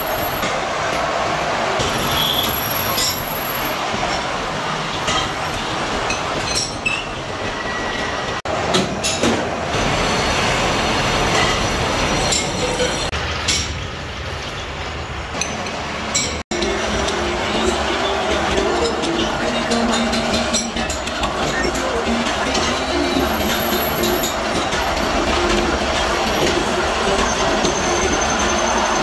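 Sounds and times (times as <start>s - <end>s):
metal lathes running: 15.3s - 29.0s.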